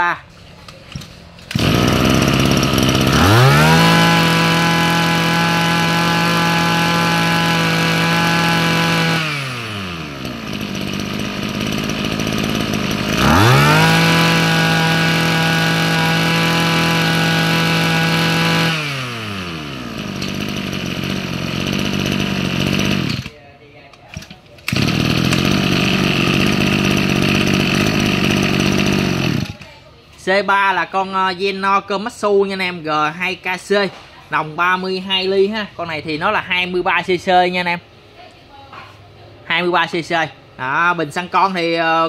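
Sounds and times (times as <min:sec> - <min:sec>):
brush-cutter engine revving: 0:00.7 - 0:29.8.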